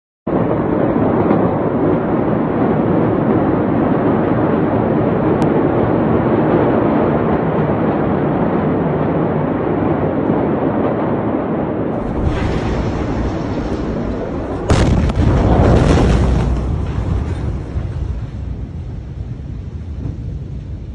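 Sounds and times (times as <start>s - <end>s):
deep rumble: 0.3s - 20.9s
steady rushing noise: 0.3s - 20.9s
explosion boom: 11.9s - 20.9s.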